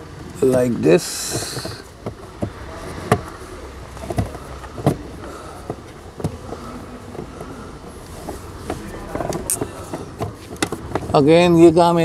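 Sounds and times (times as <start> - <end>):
faint taps and rustles: 1.3 - 11.2
sharp plastic knocks: 8.3 - 11.2.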